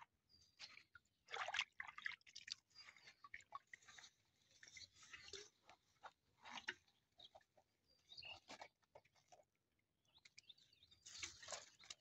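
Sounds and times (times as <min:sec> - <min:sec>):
wet net rustling and dripping: 0:00.6 - 0:07.5, 0:10.2 - 0:12.0
birds chirping: 0:07.2 - 0:08.5.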